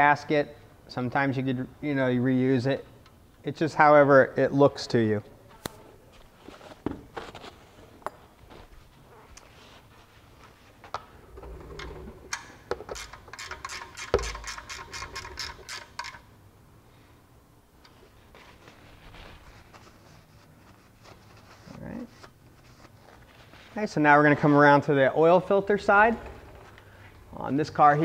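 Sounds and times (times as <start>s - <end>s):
socket ratchet clicking: 12.3s - 16.2s.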